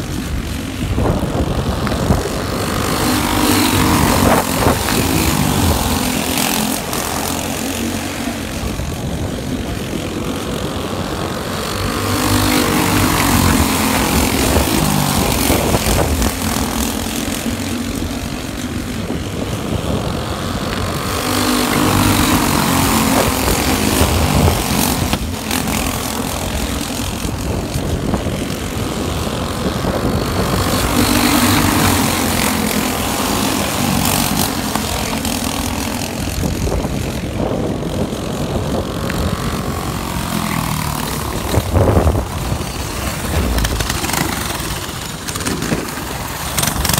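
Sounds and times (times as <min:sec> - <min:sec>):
go-kart engines buzzing: 0:00.0 - 0:46.9.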